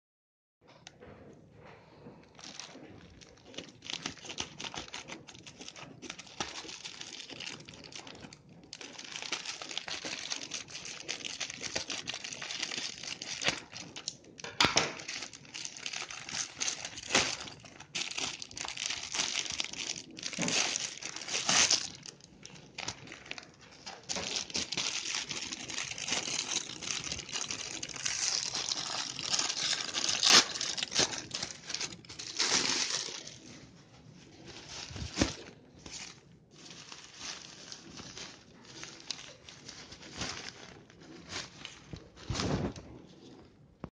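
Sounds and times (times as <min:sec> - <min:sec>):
plastic packaging crinkling: 0:02.2 - 0:43.5.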